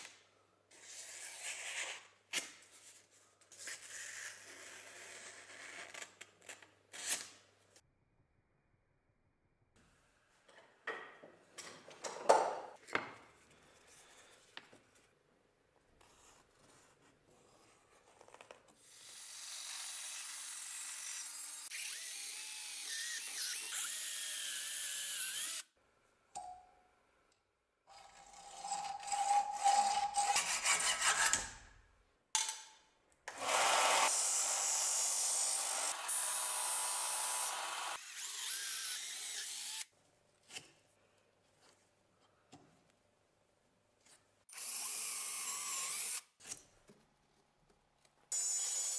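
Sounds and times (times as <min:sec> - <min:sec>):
power drill boring through steel: 0:18.8 - 0:25.6, 0:33.4 - 0:39.9.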